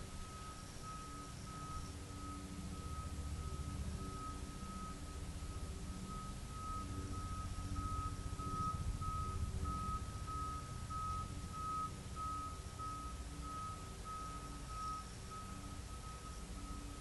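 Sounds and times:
low rumble: 2.6 - 14.0.

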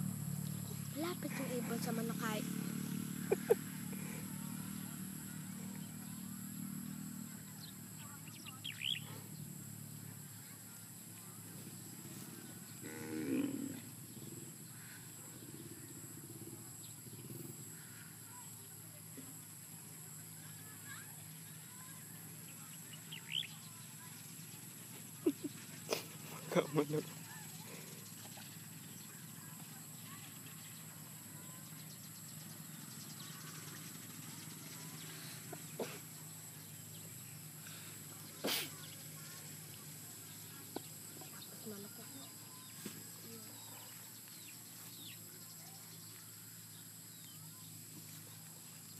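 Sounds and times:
outdoor background noise: 0.0 - 48.9
water buffalo mooing: 12.8 - 13.8.

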